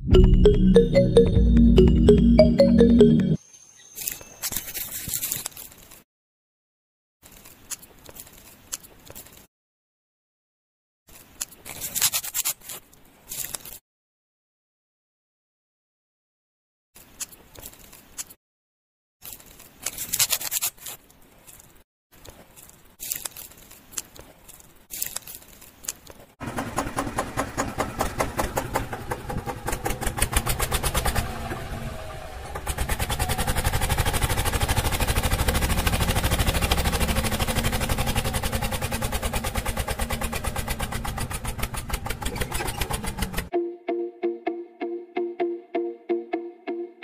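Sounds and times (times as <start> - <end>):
scissor snips: 11.4 - 12.8, 19.8 - 21.0
small engine clattering: 26.4 - 43.5.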